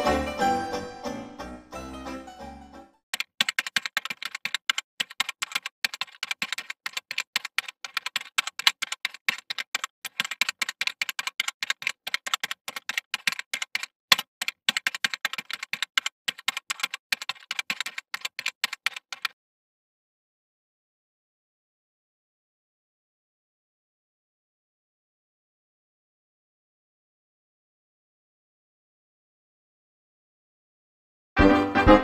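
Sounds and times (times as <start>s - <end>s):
keyboard typing: 3.1s - 19.4s.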